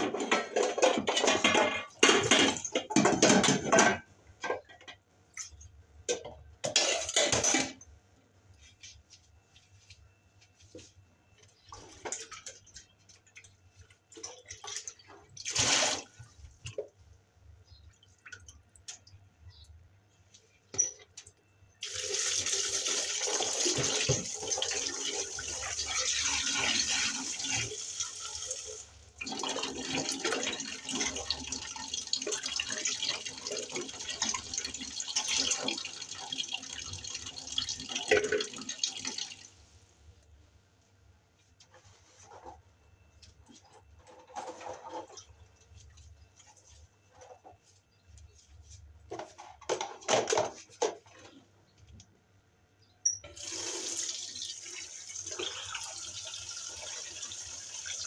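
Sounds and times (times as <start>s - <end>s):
dishes and pans clinking: 0.0s - 7.8s
tap water running: 21.8s - 39.5s, 53.3s - 58.0s.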